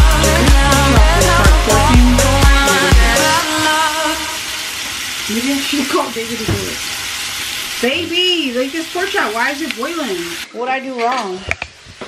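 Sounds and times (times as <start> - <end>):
person humming: 0.0 - 3.8
pork chops sizzling in a pan: 0.1 - 12.0.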